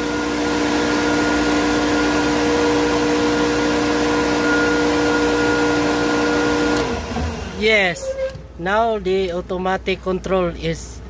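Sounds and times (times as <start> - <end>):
electric pump humming and whining: 0.0 - 8.5.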